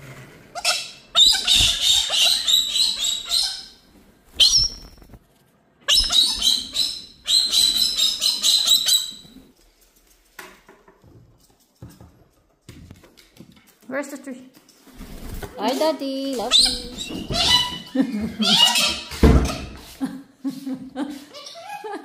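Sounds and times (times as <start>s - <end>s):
birds screeching harshly: 0.6s - 5.0s, 5.9s - 9.4s, 16.4s - 19.7s.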